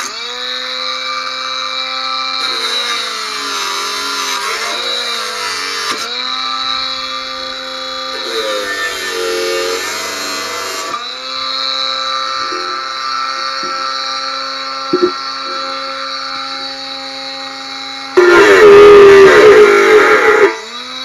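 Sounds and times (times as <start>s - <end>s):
angle grinder cutting metal: 0.0s - 21.0s
disc knocking against metal: 15.0s - 15.2s.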